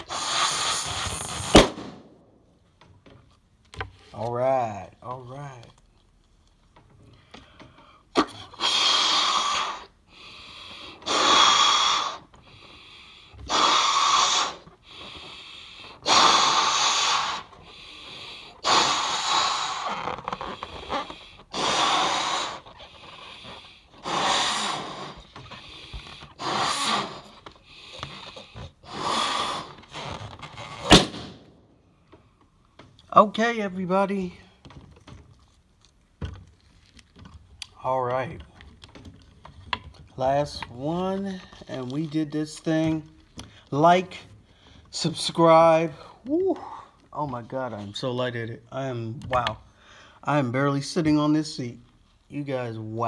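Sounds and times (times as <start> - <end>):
person blowing up balloon: 0.0 - 2.2, 8.2 - 12.8, 13.4 - 31.8
person inhaling: 49.7 - 50.2.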